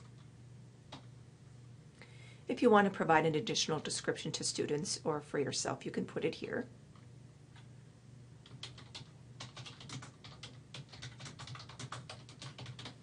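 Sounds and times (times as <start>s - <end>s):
typing on computer keyboard: 8.4s - 13.0s.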